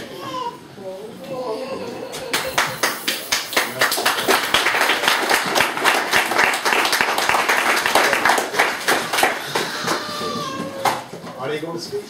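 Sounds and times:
group of people clapping: 0:02.3 - 0:11.1.

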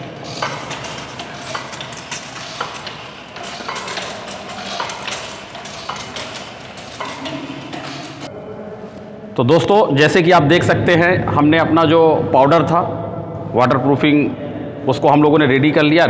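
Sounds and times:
water jet spraying wall: 0:00.0 - 0:08.3.

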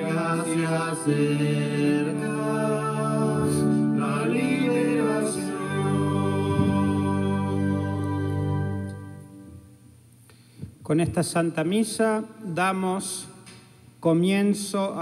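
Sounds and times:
hymn singing: 0:00.0 - 0:09.6
held instrumental chords: 0:00.0 - 0:09.9.

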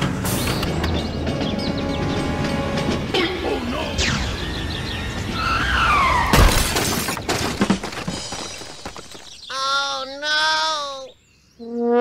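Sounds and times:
background music: 0:00.0 - 0:06.3
loud crash with shattering: 0:06.3 - 0:09.2.

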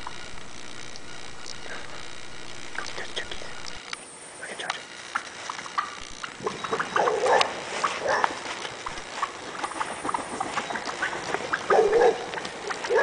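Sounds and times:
turkeys clucking: 0:05.0 - 0:13.0.

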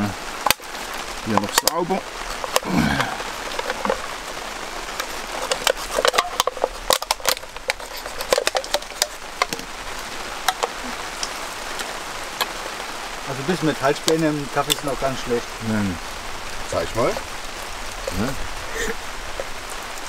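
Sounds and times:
knife scraping aluminium can: 0:05.0 - 0:09.6.

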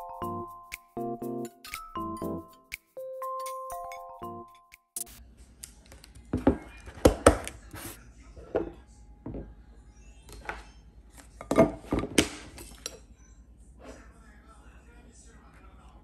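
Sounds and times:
chiming music jingle: 0:00.0 - 0:05.1.

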